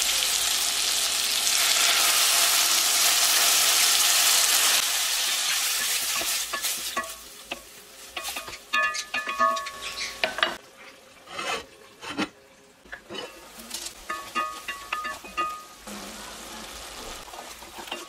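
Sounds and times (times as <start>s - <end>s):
water sizzling in hot pot: 0.0s - 12.4s, 13.0s - 18.0s
spatula knocking and scraping pot: 5.8s - 10.6s, 14.1s - 15.6s.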